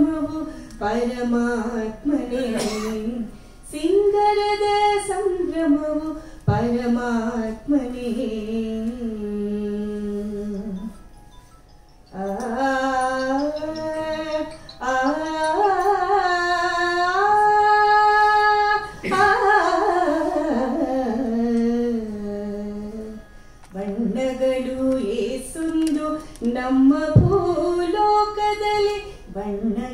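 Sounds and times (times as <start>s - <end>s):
woman singing long notes: 12.1s - 29.9s.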